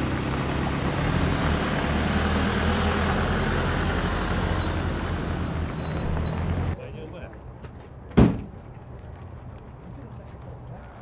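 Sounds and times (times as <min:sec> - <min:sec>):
diesel engine running low: 0:00.0 - 0:06.8.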